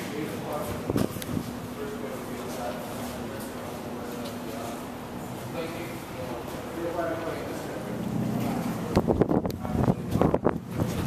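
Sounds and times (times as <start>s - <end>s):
low steady rumble: 0.0s - 11.0s
wind buffeting microphone: 8.9s - 11.0s.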